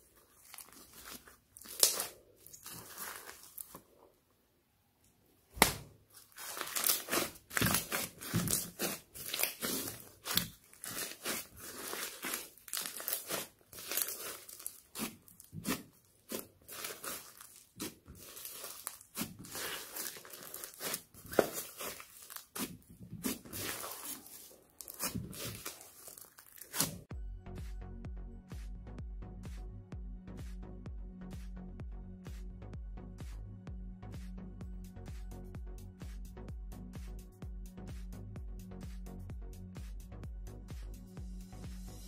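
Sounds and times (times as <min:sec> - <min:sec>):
slime crackling and squishing: 0:00.0 - 0:03.9, 0:05.6 - 0:27.1.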